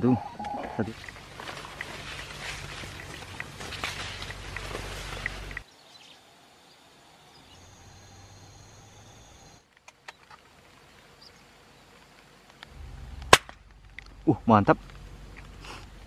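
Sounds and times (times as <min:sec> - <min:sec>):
air rifle shot: 0:13.2 - 0:13.6.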